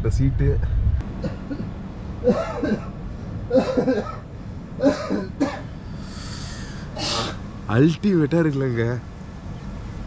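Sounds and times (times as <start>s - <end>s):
man chuckling or coughing: 3.5s - 4.2s.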